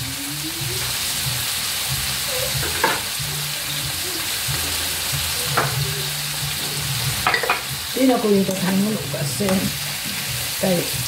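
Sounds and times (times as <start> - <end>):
vegetables sizzling in a frying pan: 0.0 - 11.0
utensil clinking against pan: 7.2 - 7.7.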